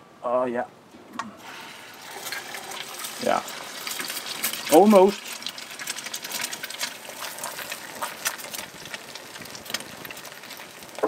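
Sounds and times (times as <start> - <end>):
fire pops and crackles: 1.2 - 11.0
egg sizzling in a pan: 1.4 - 11.0.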